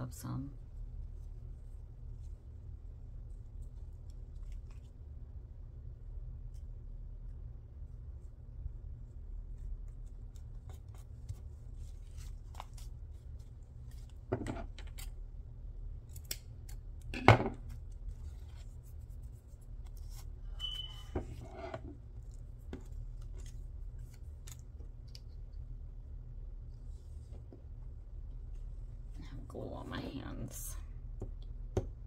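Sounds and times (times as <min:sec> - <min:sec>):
low steady hum: 0:00.0 - 0:32.0
paper or fabric rustling: 0:09.4 - 0:14.3.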